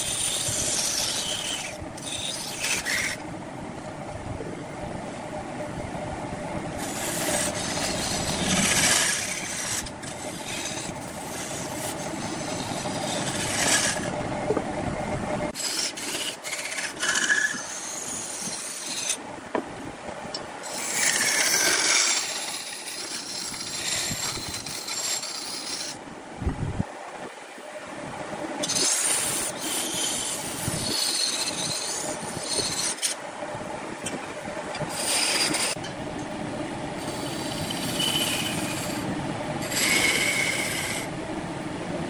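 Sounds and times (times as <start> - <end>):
chisel scraping wood on lathe: 0.0 - 3.2, 6.8 - 14.2, 15.5 - 19.2, 20.6 - 26.0, 28.6 - 33.2, 34.8 - 35.8, 37.0 - 41.1.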